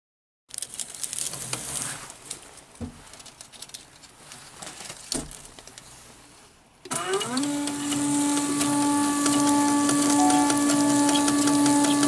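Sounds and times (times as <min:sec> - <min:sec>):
plastic rustling: 0:00.5 - 0:06.6.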